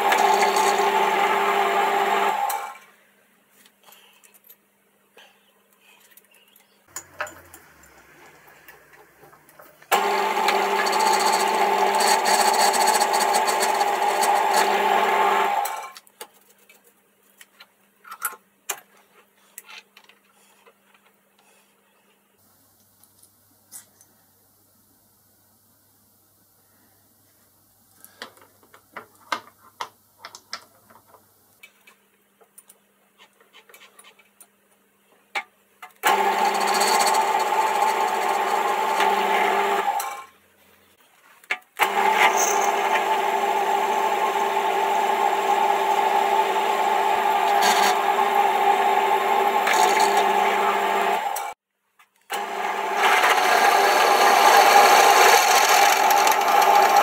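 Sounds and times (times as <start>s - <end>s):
end mill cutting steel: 0.0s - 2.7s, 6.9s - 15.8s, 36.0s - 40.2s, 41.8s - 51.6s, 52.3s - 57.0s
lathe machine whine: 0.0s - 2.7s, 9.9s - 15.8s, 36.1s - 40.1s, 41.8s - 51.6s, 52.4s - 57.0s
steel parts clicking and tapping: 6.0s - 9.9s.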